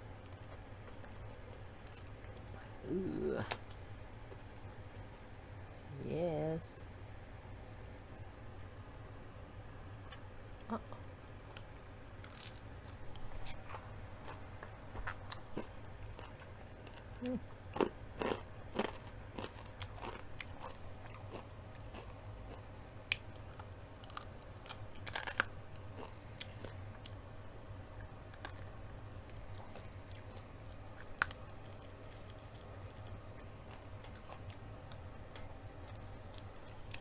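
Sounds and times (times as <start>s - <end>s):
crunching fried chicken: 11.5s - 27.2s, 28.0s - 37.0s.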